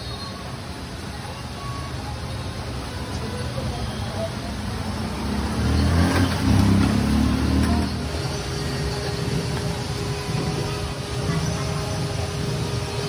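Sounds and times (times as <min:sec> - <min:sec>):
motor traffic: 0:00.0 - 0:13.0
vehicle engine passing: 0:04.5 - 0:13.0.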